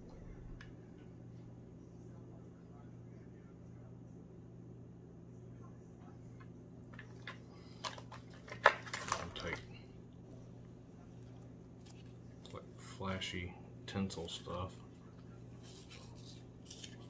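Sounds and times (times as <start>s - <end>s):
low steady hum: 0.0s - 17.0s
clicks and rustles of handling: 6.4s - 9.9s, 14.1s - 17.0s.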